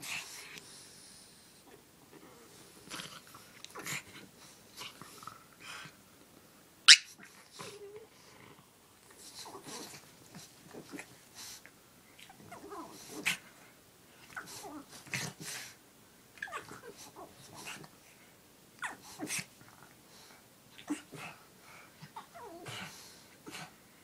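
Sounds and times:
dogs breathy noises and whines: 6.9 - 15.8, 16.4 - 24.0.

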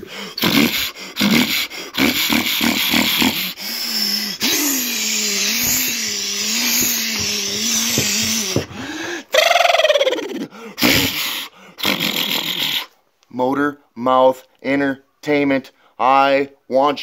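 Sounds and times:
man imitating diesel engine: 0.0 - 8.2.

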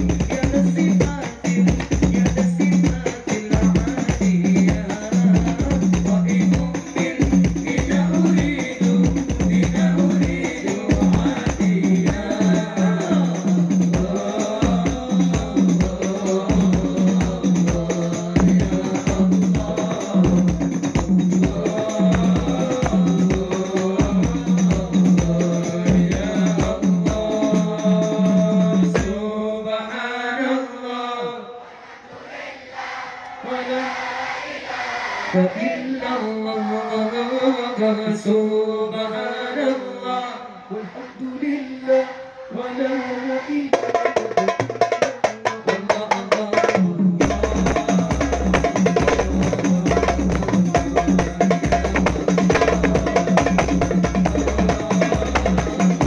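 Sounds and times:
jingling percussion: 0.0 - 29.3, 43.8 - 56.0.

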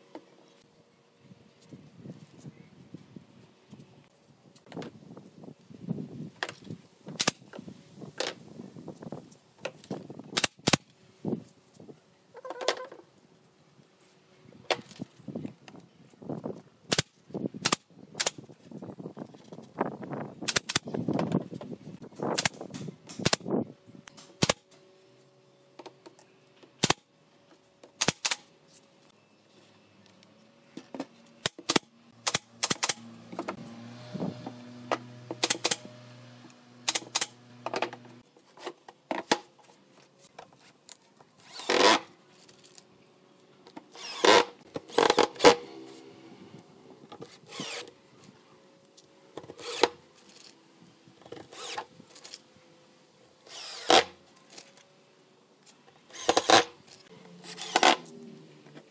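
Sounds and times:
nail gun firing: 16.9 - 18.4, 20.5 - 20.9, 22.3 - 23.5, 24.4 - 24.6, 26.8 - 27.0, 28.0 - 28.5, 31.4 - 33.0, 35.4 - 35.9, 36.8 - 37.4, 44.0 - 45.7, 56.1 - 56.7, 57.5 - 58.0.

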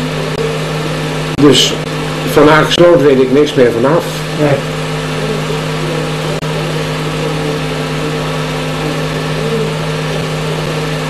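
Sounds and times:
film projector motor whirring: 0.0 - 11.0.

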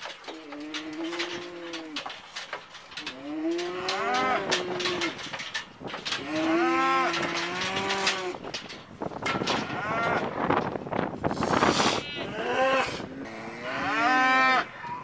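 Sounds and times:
metal chute knocking and rattling: 0.0 - 11.3
cow mooing: 0.3 - 2.1, 3.0 - 5.3, 11.8 - 15.0.

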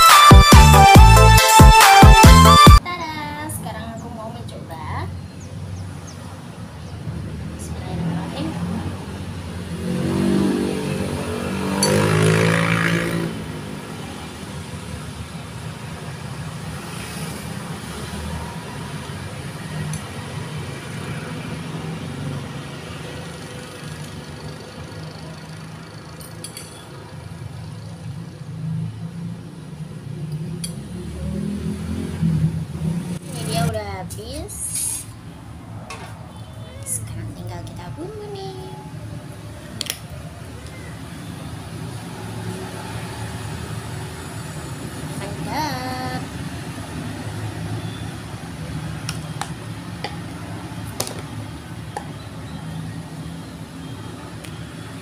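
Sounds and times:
metal spoon clinking against bowl: 26.2 - 26.9.

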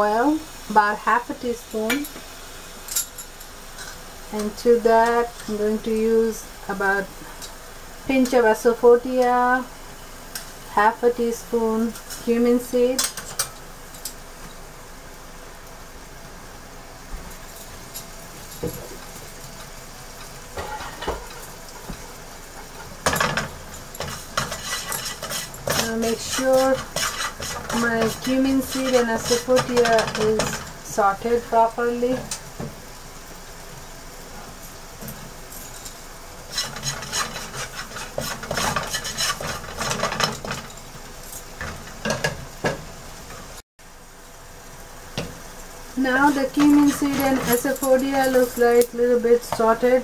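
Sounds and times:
seeds frying in hot oil: 0.0 - 50.0
spatula scraping pan: 20.2 - 32.4, 36.4 - 40.9, 46.0 - 49.8.

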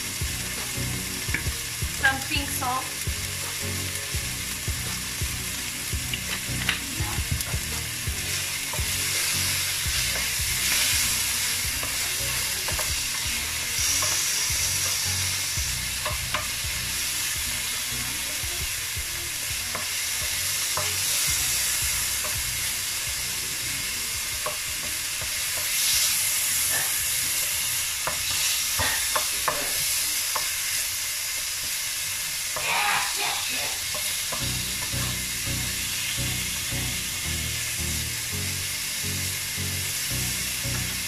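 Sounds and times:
chicken sizzling in oil: 0.0 - 41.0
wooden spoon scraping a pan: 8.6 - 15.0.

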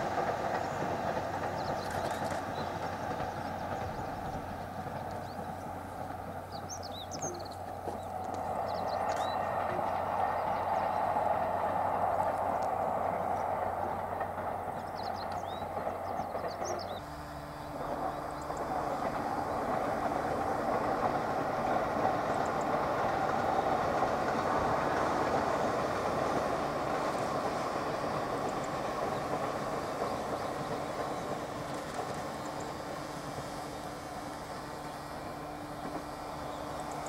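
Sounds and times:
distant train rumble: 0.0 - 37.0
bird chirps: 6.5 - 9.5, 14.8 - 17.0.

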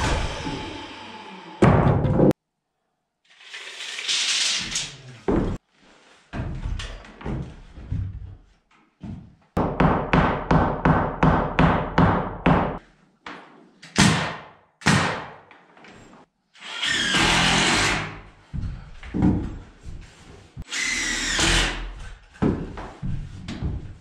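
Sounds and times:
power tool running: 0.0 - 1.8
hammer striking wood: 9.6 - 12.8.

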